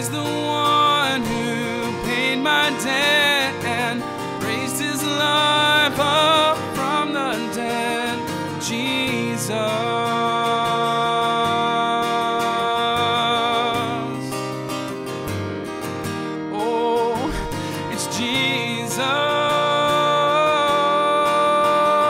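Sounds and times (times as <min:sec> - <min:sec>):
person singing long notes: 0:16.6 - 0:22.0.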